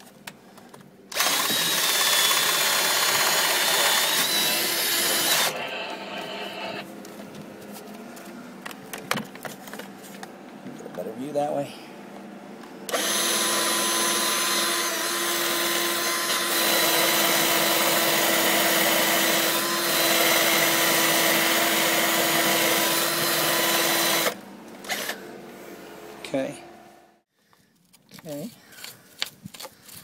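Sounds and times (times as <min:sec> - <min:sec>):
drill with wire brush grinding: 0:01.1 - 0:06.8, 0:12.9 - 0:25.2.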